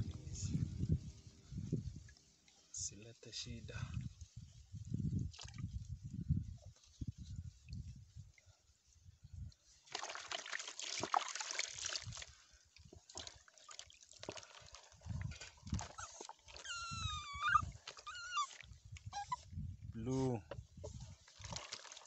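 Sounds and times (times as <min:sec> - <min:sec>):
water sloshing in basin: 0:05.2 - 0:05.9, 0:09.8 - 0:16.7, 0:17.6 - 0:19.0, 0:20.2 - 0:22.0
water splashing and pouring: 0:05.2 - 0:05.9, 0:09.8 - 0:16.6, 0:20.9 - 0:22.0
puppy whining: 0:15.8 - 0:19.5.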